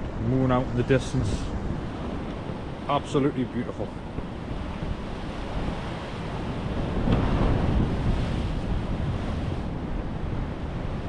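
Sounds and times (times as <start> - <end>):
waves washing against rocky shore: 0.0 - 11.0.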